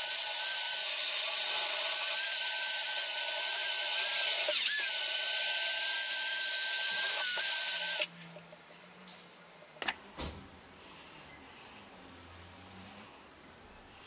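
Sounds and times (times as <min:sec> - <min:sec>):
power drill motor whine: 0:00.0 - 0:08.1.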